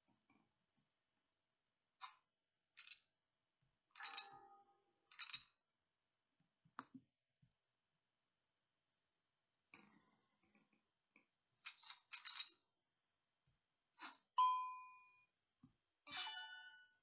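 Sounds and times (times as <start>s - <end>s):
poker chips clattering: 5.1s - 5.5s, 11.7s - 12.6s
ringing ding: 14.4s - 15.1s
chiming tones: 14.4s - 15.2s.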